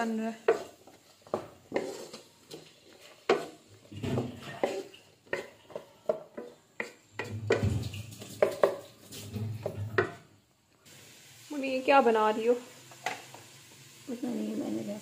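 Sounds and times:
spatula scraping frying pan: 0.0 - 10.3.

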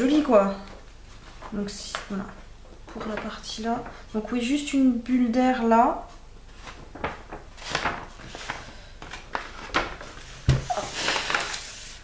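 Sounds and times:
paper rustling and crinkling: 6.5 - 12.0.

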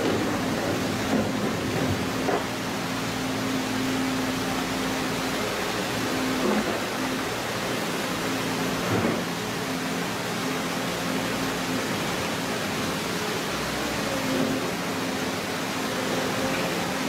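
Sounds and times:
excavator engine and hydraulics hum: 0.0 - 17.0.

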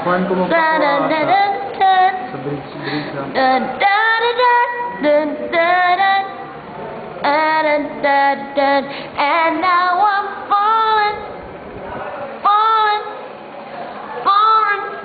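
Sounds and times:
woman singing slow melody: 0.5 - 2.3, 3.4 - 6.4, 7.2 - 11.3.

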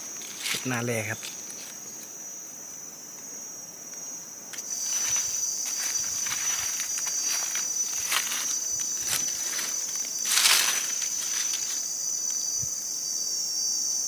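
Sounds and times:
insects droning: 0.0 - 14.0
footsteps crunching dry leaves: 0.1 - 1.8, 4.6 - 12.5.

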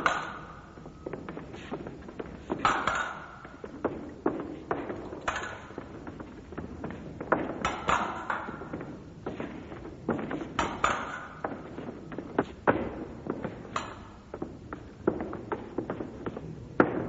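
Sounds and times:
fencing blades clinking: 4.8 - 6.2.

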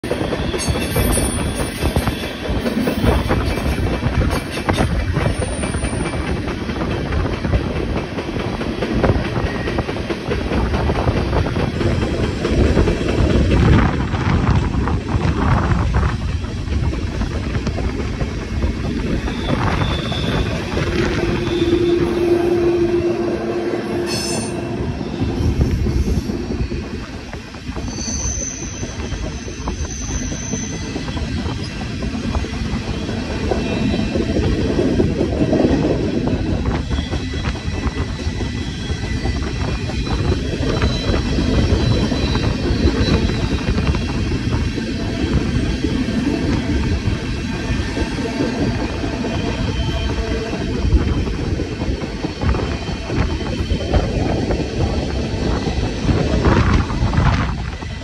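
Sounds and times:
train wheels rumbling on rail: 0.0 - 58.0
high wheel squeal: 18.8 - 27.0, 27.7 - 31.8, 36.2 - 44.2.

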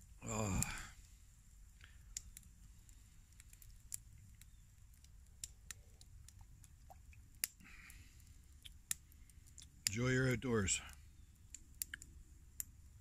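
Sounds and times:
faint sharp clicks: 1.7 - 10.0, 10.8 - 12.7.

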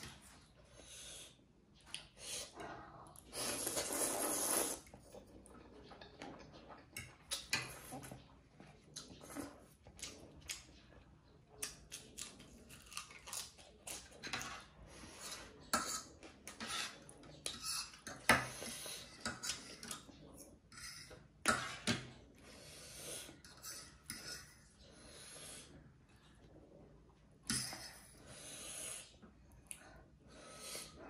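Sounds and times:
chewing: 3.1 - 15.6
cutlery scraping on a tray: 14.2 - 20.1, 20.7 - 22.1.

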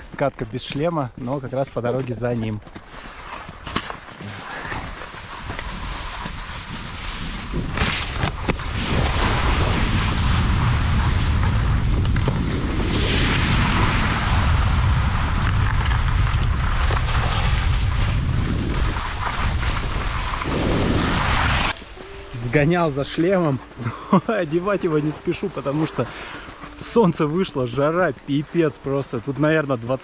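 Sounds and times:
skis scraping on slushy snow: 0.1 - 30.0
wind buffeting microphone: 5.3 - 22.4.

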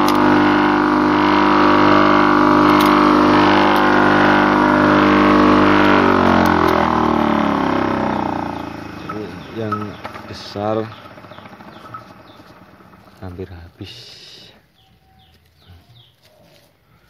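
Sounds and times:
corn sheller motor running: 0.0 - 16.1.

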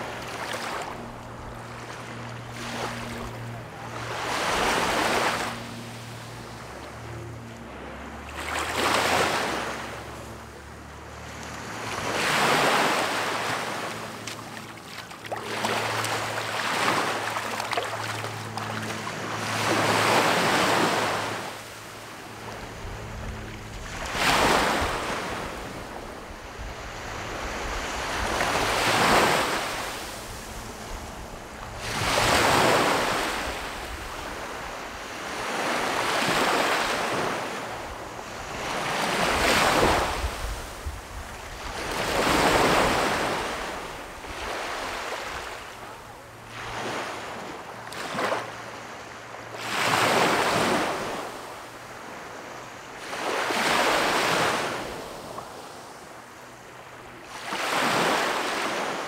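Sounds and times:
waves washing up on beach: 0.0 - 6.6, 8.1 - 59.0
wind rumble on microphone: 22.2 - 47.3.

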